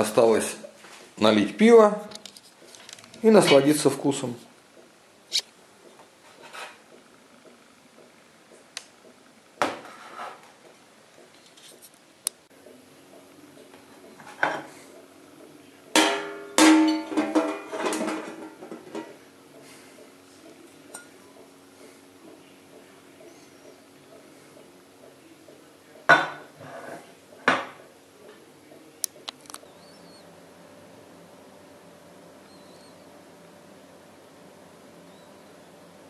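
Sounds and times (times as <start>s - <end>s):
food strips clattering on steel: 16.0s - 19.2s.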